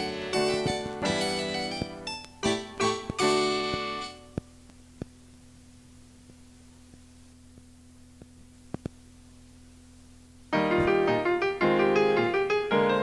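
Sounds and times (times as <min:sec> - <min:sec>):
keyboard children's song: 0:00.0 - 0:04.5, 0:10.5 - 0:13.0
cassette tape hiss: 0:00.0 - 0:13.0.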